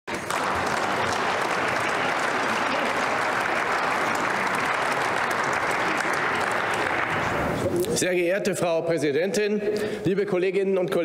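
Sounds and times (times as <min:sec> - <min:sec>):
crowd applause: 0:00.1 - 0:07.8.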